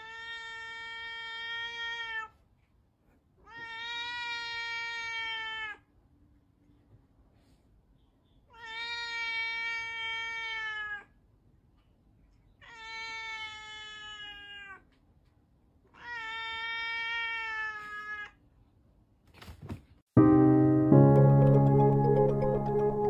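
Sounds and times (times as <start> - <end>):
cat meowing: 0.0 - 2.4, 3.4 - 5.9, 8.5 - 11.2, 12.6 - 15.0, 15.9 - 18.4.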